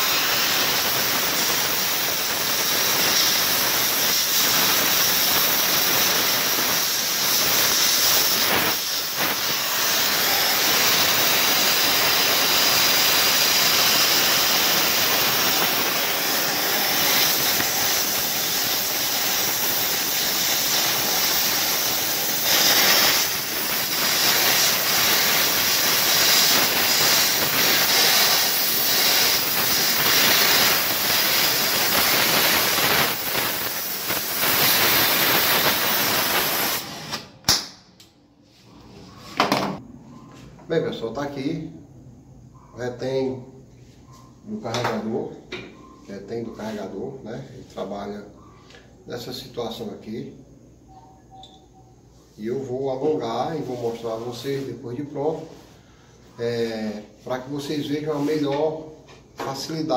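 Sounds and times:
welding torch flame hissing: 0.0 - 37.8.

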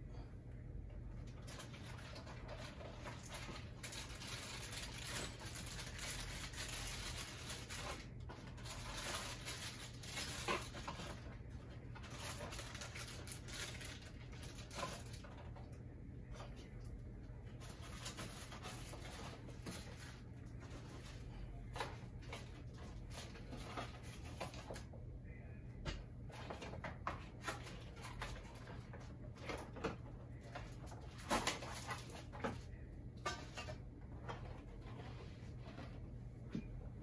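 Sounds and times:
steady low hum: 0.0 - 37.0
packaging and paper rustling: 1.2 - 15.7, 17.5 - 24.9, 26.3 - 32.7.

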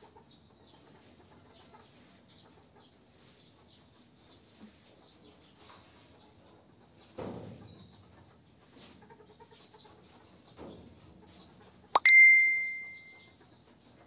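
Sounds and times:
sharp metallic ding: 12.0 - 13.2.

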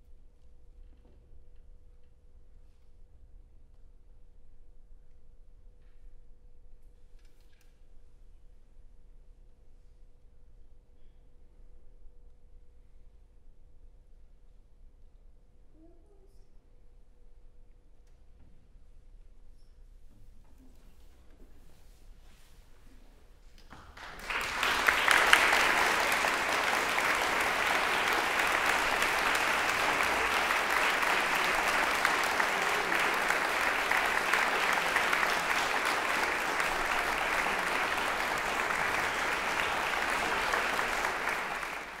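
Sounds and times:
audience applauding: 23.7 - 42.0.

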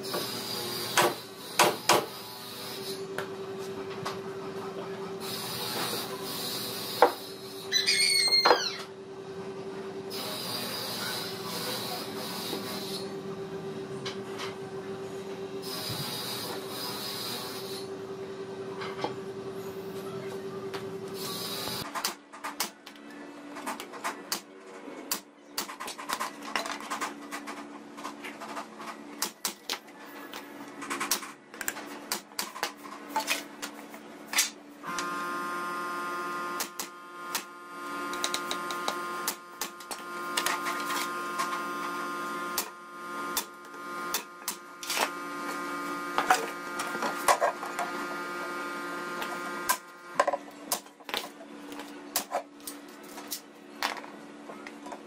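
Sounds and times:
steady hum: 32.0 - 54.9.

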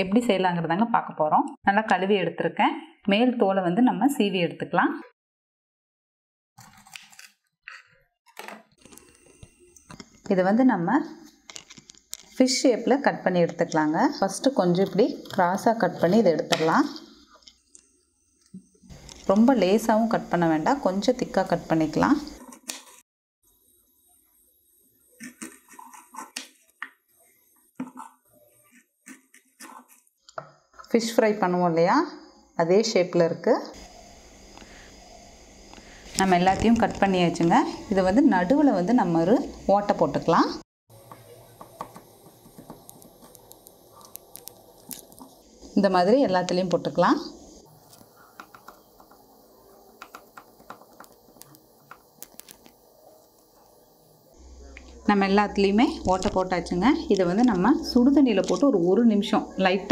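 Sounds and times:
knife scraping: 22.3 - 23.0, 25.2 - 30.2.

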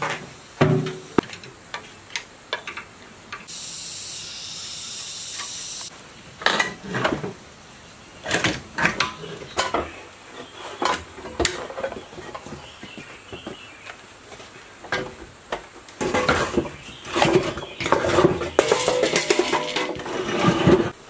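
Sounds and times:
metal tools clinking and knocking: 17.2 - 20.1.

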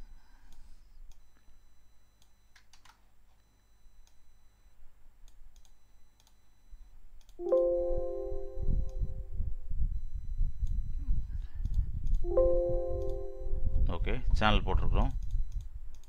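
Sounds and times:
faint low hum: 0.0 - 16.0
computer mouse clicks: 5.3 - 6.4
held multi-pitched tone: 7.4 - 10.2, 12.2 - 14.0.

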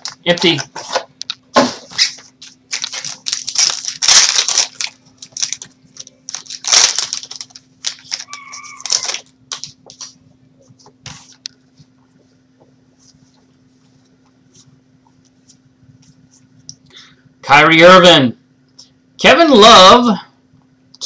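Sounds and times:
plastic and foil wrappers crinkling: 0.0 - 10.2.

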